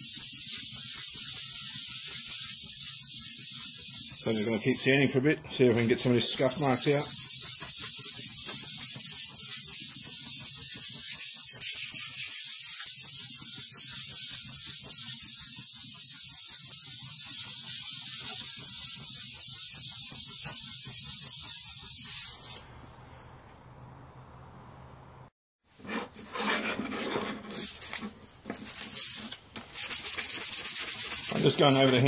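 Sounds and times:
sanding block scratching steel: 0:00.0 - 0:05.0, 0:05.7 - 0:22.5, 0:28.8 - 0:32.0.

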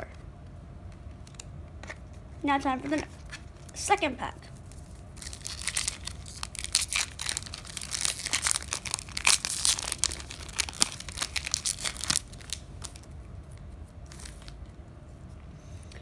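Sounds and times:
foil wrapper crinkling and tearing: 0:04.7 - 0:13.1, 0:14.0 - 0:14.6.

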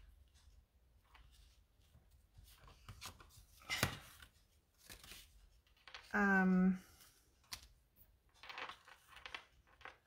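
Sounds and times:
hands rustling cardstock: 0:01.0 - 0:06.1.

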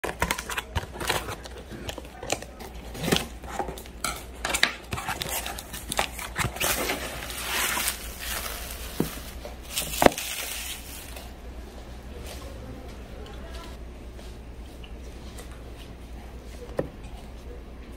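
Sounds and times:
bubble wrap crinkling: 0:00.0 - 0:11.4.

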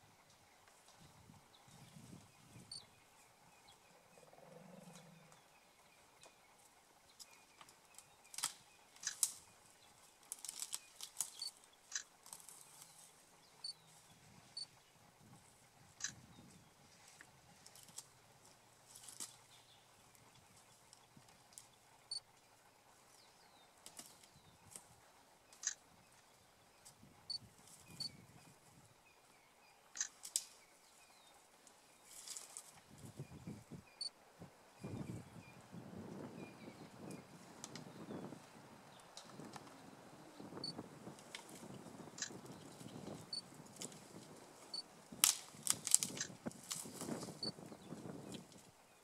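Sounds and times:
elephant low rumble: 0:00.0 - 0:30.0, 0:30.6 - 0:48.9
twigs snapping: 0:07.6 - 0:09.4, 0:10.2 - 0:12.9, 0:30.0 - 0:30.6, 0:45.2 - 0:47.3.

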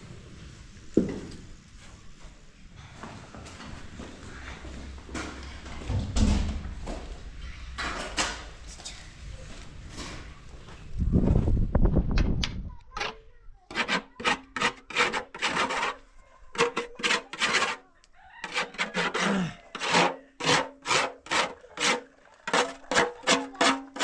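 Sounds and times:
metal pan scraped by hand: 0:13.0 - 0:17.8, 0:18.4 - 0:24.0.

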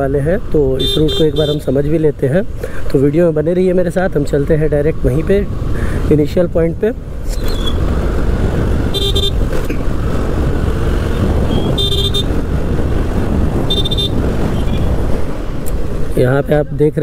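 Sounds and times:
wind buffeting microphone: 0:06.8 - 0:16.2
motorcycle engine and tyres: 0:07.0 - 0:16.2
short horn beeps: 0:08.9 - 0:09.4, 0:11.5 - 0:12.3, 0:13.7 - 0:14.8.

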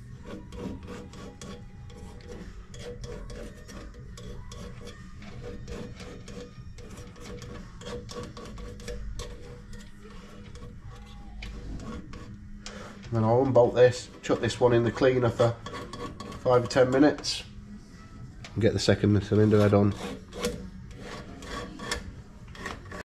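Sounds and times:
metal scraping on aluminium: 0:00.0 - 0:17.5, 0:18.6 - 0:23.0
steady low hum: 0:00.0 - 0:23.0.

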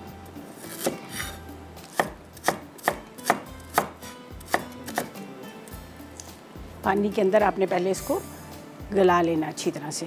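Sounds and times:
knife chopping on wooden board: 0:00.6 - 0:05.2.

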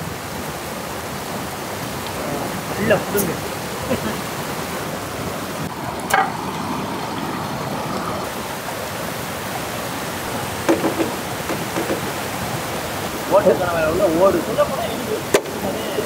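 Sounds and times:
river running over rocks: 0:00.0 - 0:16.0.

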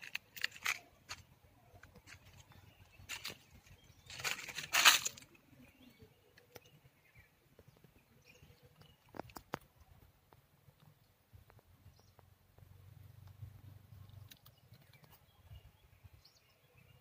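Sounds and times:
crunching crackling rustle: 0:00.0 - 0:07.2, 0:08.7 - 0:12.7.

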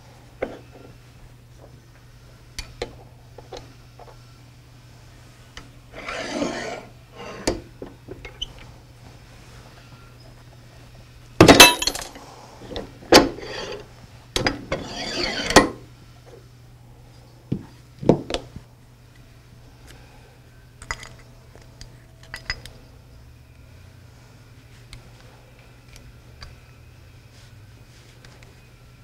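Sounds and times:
dull thuds of parts set down: 0:11.4 - 0:12.2
metal parts clattering: 0:11.4 - 0:12.2
light clicks of steel parts: 0:20.8 - 0:22.8.

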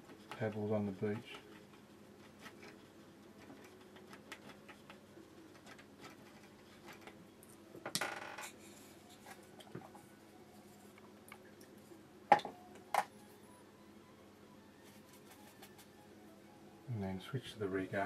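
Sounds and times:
scratchy rustle: 0:14.8 - 0:15.9.

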